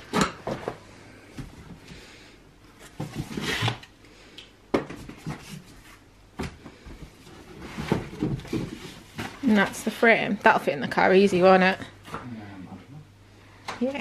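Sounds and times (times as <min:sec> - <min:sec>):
rustling and scraping in cardboard box: 0:07.2 - 0:09.9.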